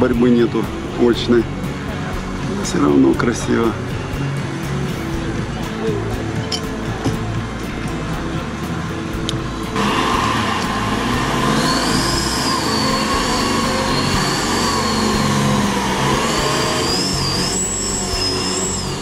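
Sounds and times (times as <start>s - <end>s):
vehicle engine under load: 6.2s - 19.0s
winch whining: 9.8s - 19.0s.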